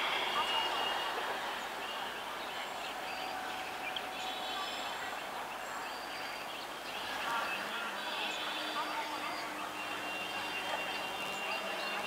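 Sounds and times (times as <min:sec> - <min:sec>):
distant train running noise: 0:00.0 - 0:12.0.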